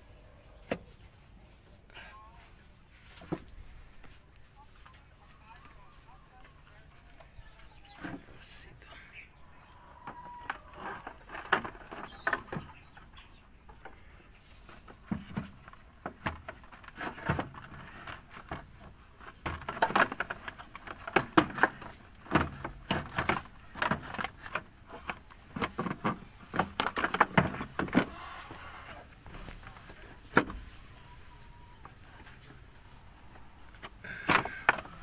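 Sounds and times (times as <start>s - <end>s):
plastic cover clicking and scraping: 10.0s - 14.0s, 14.7s - 31.1s, 33.6s - 35.0s.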